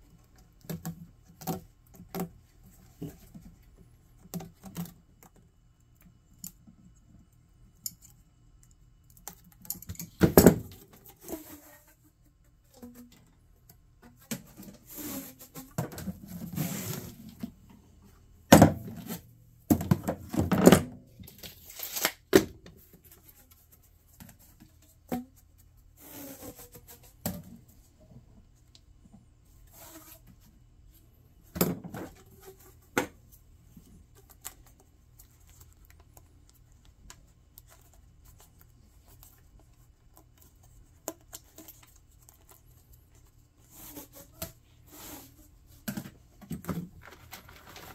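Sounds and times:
plastic ducting crinkling and scraping: 21.2s - 25.3s, 46.6s - 47.9s.

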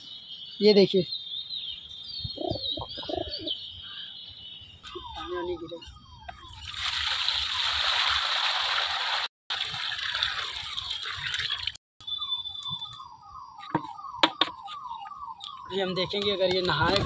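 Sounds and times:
bird chirping: 0.0s - 6.7s, 11.0s - 17.0s
water pouring into a plastic tub: 6.5s - 11.8s
sharp knocks: 13.7s - 14.6s.

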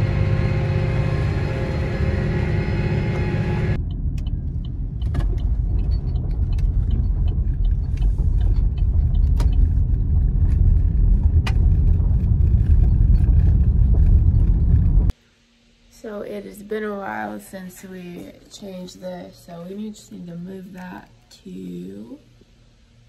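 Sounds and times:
car driving on gravel: 0.0s - 15.1s
pitched machine hum: 0.0s - 15.1s.

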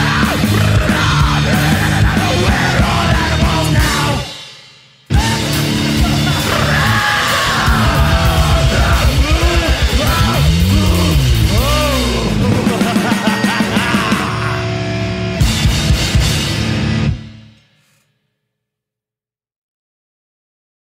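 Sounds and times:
electric guitar: 0.0s - 4.4s, 5.1s - 17.6s
fast drumming: 0.0s - 4.5s, 5.1s - 14.6s, 15.4s - 16.7s.

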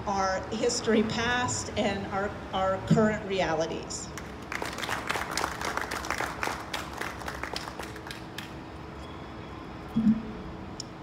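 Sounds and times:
audience applauding: 4.5s - 8.5s.

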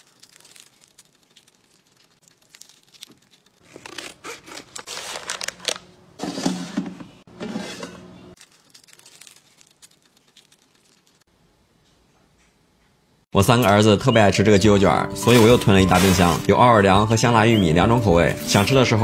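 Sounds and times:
scissors snipping plastic packet: 0.0s - 5.8s
plastic wrapper crinkling: 0.0s - 5.9s, 8.4s - 11.3s.

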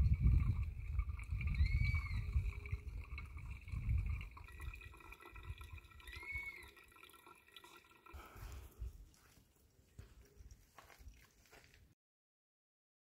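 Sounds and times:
water pouring onto coffee grounds: 0.0s - 8.8s
water trickling and dripping: 0.0s - 9.4s.

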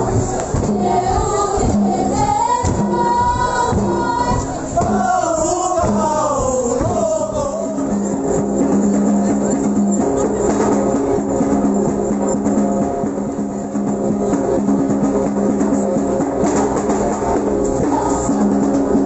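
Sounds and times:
voices chanting together: 0.0s - 9.6s, 17.7s - 19.0s
regular drum beat: 0.0s - 19.0s.

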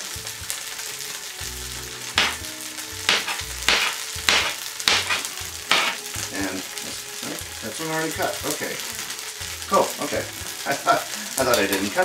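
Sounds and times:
knife chopping on plastic board: 2.2s - 2.4s, 3.1s - 6.0s.

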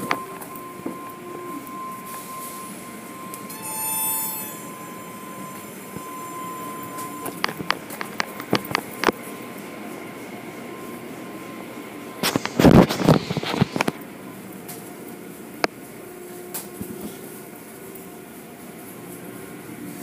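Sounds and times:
thin steady tone: 0.0s - 7.8s
brief whine: 0.0s - 9.1s, 10.7s - 14.0s
car wash machinery rumble: 0.0s - 20.0s.

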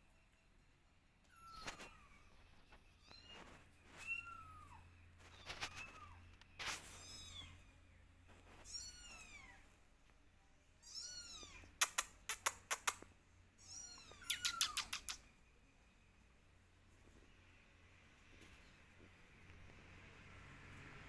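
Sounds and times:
kittens meowing: 8.6s - 9.7s, 10.8s - 11.8s, 13.6s - 15.2s
sharp clicks: 11.8s - 13.1s, 14.2s - 15.3s.

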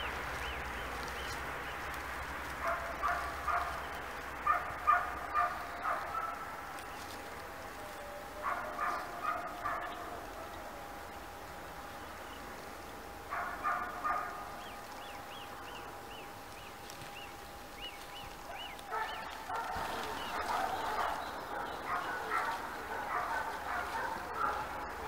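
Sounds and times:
animal calls: 13.3s - 25.0s.

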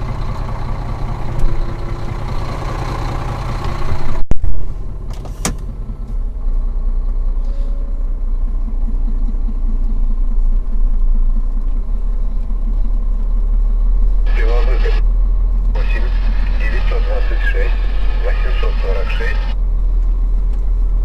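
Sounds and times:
truck diesel engine running: 0.0s - 21.0s
cab door shutting: 5.1s - 5.8s.

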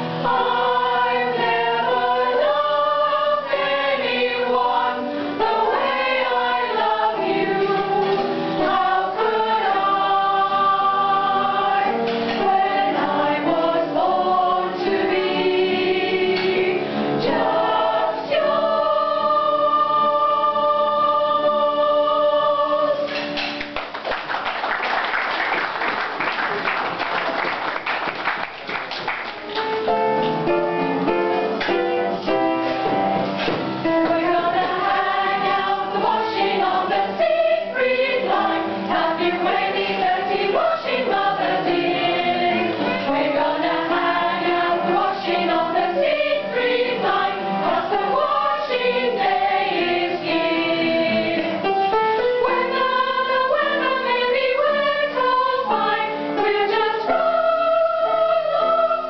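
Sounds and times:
mixed choir singing: 0.0s - 23.6s, 31.4s - 59.0s
applause: 23.6s - 29.6s.

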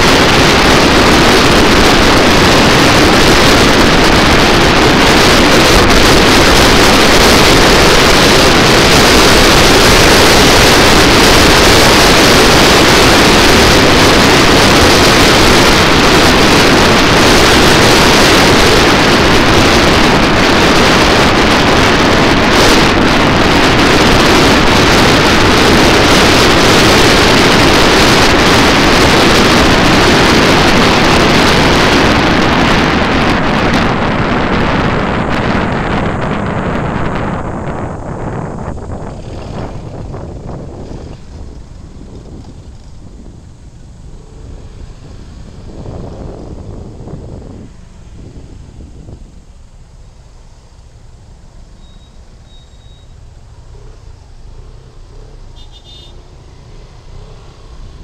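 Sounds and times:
road noise: 0.0s - 58.0s
wind rush on microphone: 0.0s - 58.0s.

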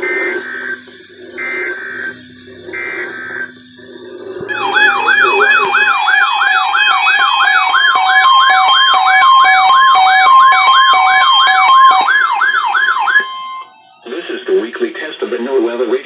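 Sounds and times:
warbling siren alert: 0.0s - 14.3s
short steady beeps: 4.4s - 7.6s.

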